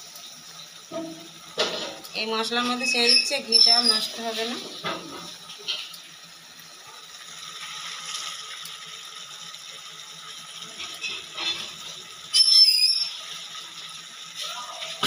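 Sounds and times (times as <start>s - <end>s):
curry sizzling: 0.0s - 15.0s
high-pitched squeak: 2.6s - 4.5s, 12.3s - 13.2s.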